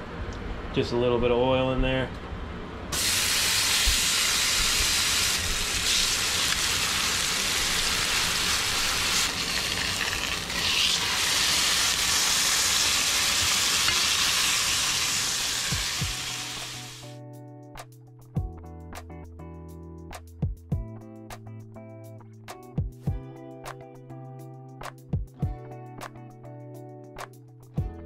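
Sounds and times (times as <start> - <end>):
fish sizzling in hot oil: 3.0 - 17.0.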